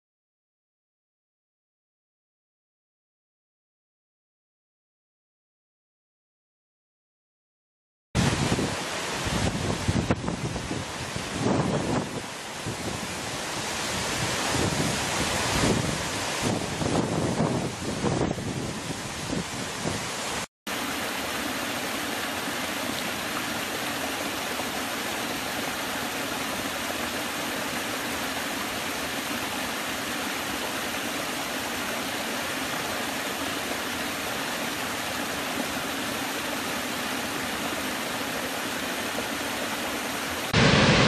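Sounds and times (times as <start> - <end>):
large waterfall rushing: 8.2 - 41.0
stream rushing over rocks: 8.2 - 41.0
wind: 8.2 - 41.0.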